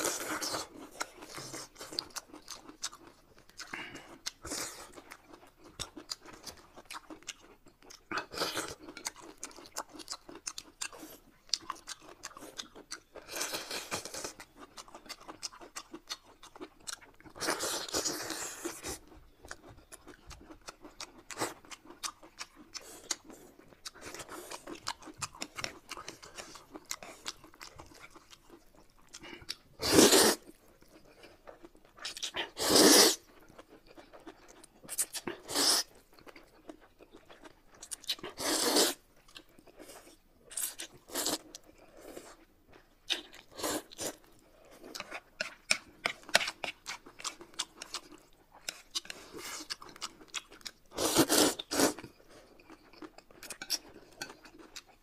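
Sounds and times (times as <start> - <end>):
wet chewing clicks: 18.2 - 29.7, 43.0 - 55.0
noodles being slurped: 29.8 - 30.5, 32.4 - 33.3, 35.4 - 36.0, 38.3 - 39.0, 50.9 - 52.1.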